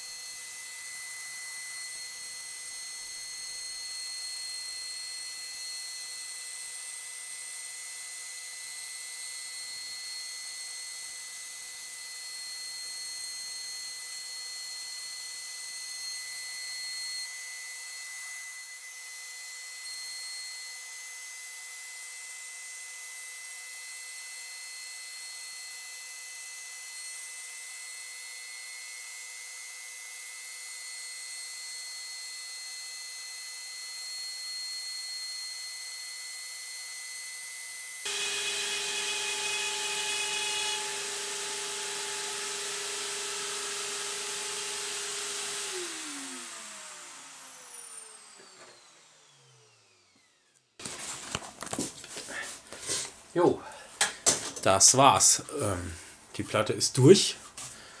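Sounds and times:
high-pitched whistle over hiss: 0:00.0 - 0:06.3, 0:09.4 - 0:17.4, 0:19.7 - 0:20.8.

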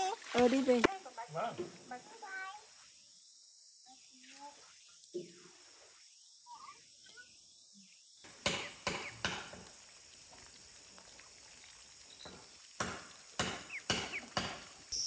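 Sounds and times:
insects chirring: 0:00.0 - 0:15.0
sharp knocks: 0:08.4 - 0:09.6, 0:12.3 - 0:14.7.

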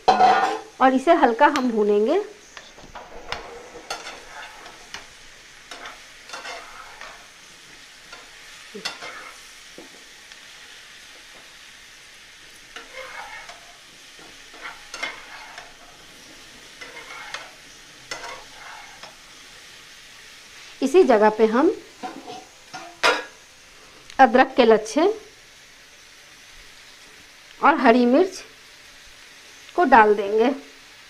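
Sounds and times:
mushrooms sizzling in butter: 0:00.0 - 0:31.0
spatula scraping pan: 0:00.1 - 0:00.8, 0:02.5 - 0:10.1, 0:12.5 - 0:19.6, 0:22.0 - 0:23.4.

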